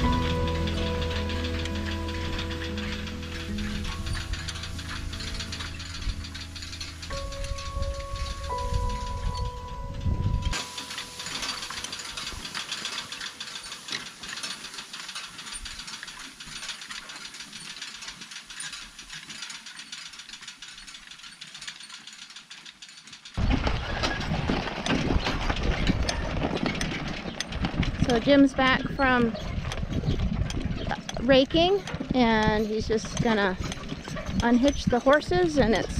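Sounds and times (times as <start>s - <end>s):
low rumble: 0.0s - 12.6s
hay rake rattling and clicking: 0.0s - 35.9s.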